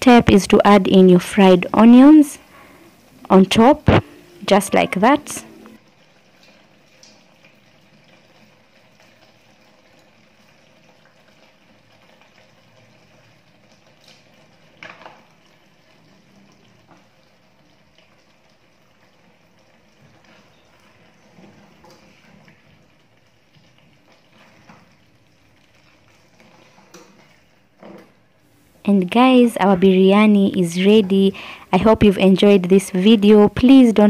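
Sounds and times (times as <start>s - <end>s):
curry bubbling in pot: 5.8s - 28.5s
wooden spoon stirring pot: 25.6s - 28.2s.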